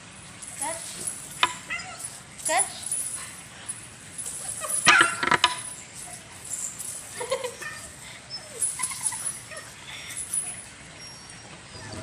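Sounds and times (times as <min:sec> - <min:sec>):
chain and claws clattering on tiles: 0:00.0 - 0:10.9
puppy whimpering: 0:00.8 - 0:02.2, 0:04.2 - 0:12.0.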